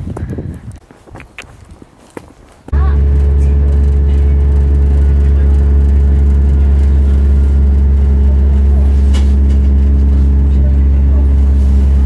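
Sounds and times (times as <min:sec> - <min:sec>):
diesel train engine droning: 0:02.7 - 0:12.0.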